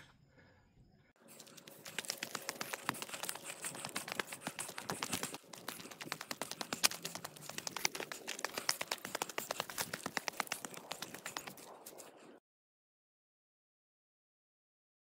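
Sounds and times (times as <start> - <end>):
footsteps on loose stones: 1.2 - 12.1.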